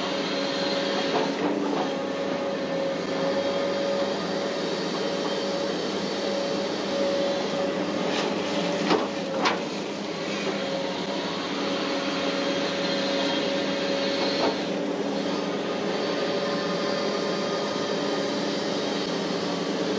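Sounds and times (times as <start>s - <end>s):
excavator engine and hydraulics: 0.0s - 19.9s.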